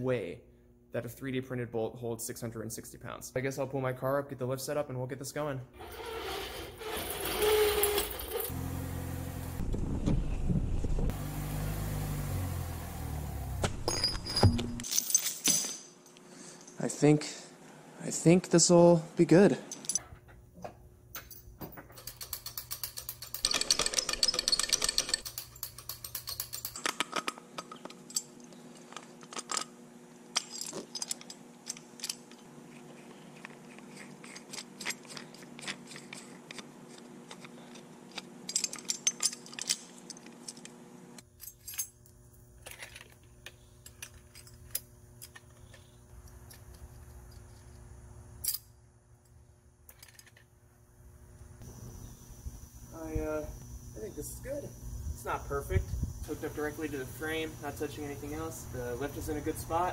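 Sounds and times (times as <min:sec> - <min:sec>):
steel hardware clinking and rattling: 0:13.8 - 0:15.9, 0:21.1 - 0:32.4, 0:37.3 - 0:40.7, 0:49.9 - 0:50.5.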